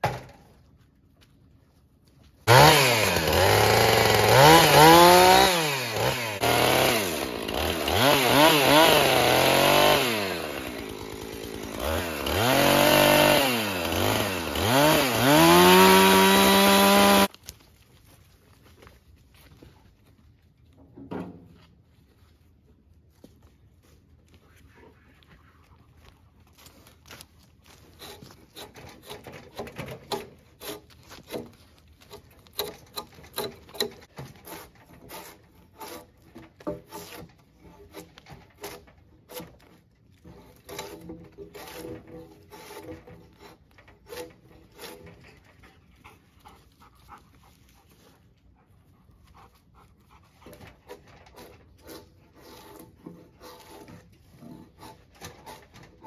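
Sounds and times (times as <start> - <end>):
drawknife scraping bark: 26.6 - 48.2, 49.3 - 56.0
dog panting: 45.5 - 51.1.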